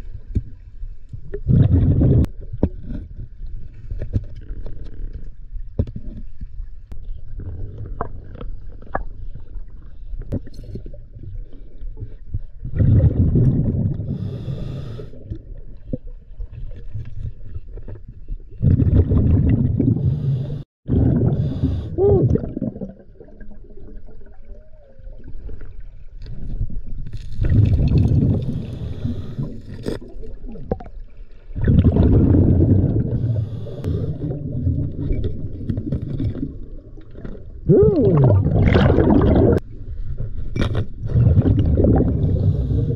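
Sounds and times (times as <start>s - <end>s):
underwater exhaled air bubbles: 1.2s - 5.2s, 7.1s - 39.7s, 41.0s - 42.9s
regulator inhalation: 33.1s - 34.4s.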